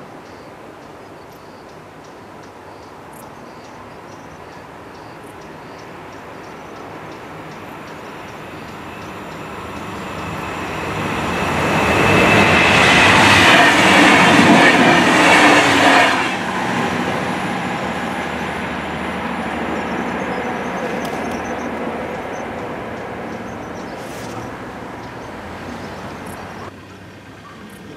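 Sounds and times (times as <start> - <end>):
diesel train passing: 0.0 - 27.9
wheels on rails: 4.4 - 27.9.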